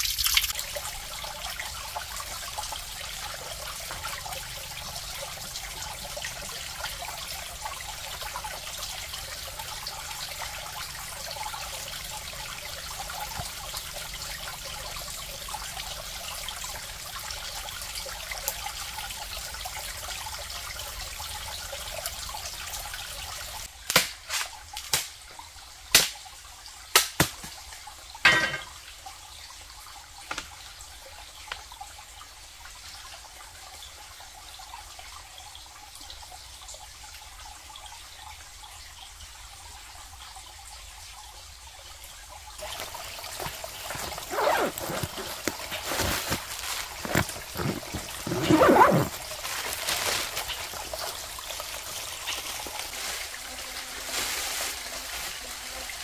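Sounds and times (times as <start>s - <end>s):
crackling water: 42.6s - 56.0s.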